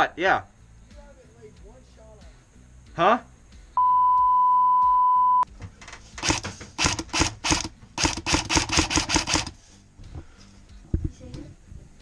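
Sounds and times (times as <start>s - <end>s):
airsoft gun shots: 6.2s - 9.6s.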